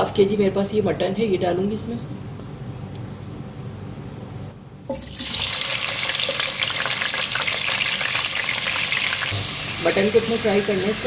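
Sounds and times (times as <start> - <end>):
meat sizzling in hot oil: 5.0 - 11.0.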